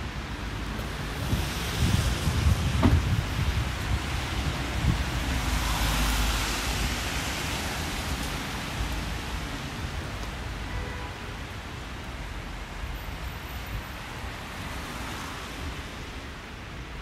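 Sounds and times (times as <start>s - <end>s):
tyres hissing on wet road: 0.0s - 17.0s
wind rumble on microphone: 0.1s - 10.3s.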